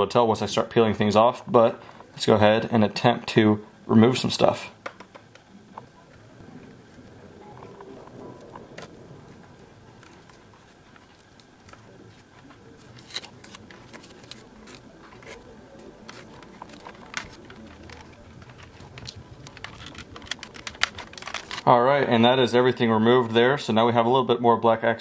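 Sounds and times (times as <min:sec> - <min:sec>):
masking tape peeling off plastic: 0:10.0 - 0:21.7.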